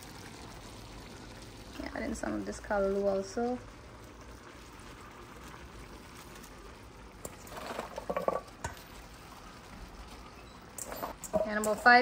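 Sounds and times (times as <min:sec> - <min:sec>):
pot of rice simmering: 0:00.0 - 0:12.0
light knocks on pot: 0:08.0 - 0:08.8.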